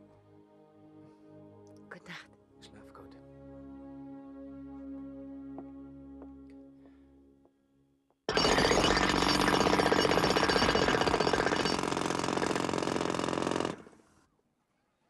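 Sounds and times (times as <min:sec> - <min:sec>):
jackhammer hammering: 0:08.3 - 0:14.0.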